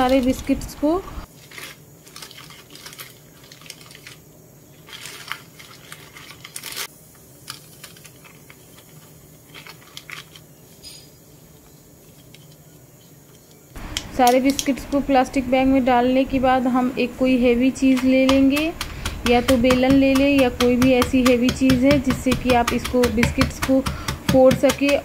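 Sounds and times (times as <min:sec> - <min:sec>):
plastic bag crinkling: 0:01.3 - 0:10.8.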